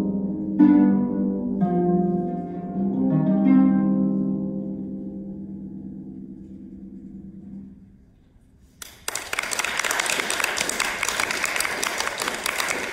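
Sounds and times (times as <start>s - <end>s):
audience applause: 8.8s - 12.9s.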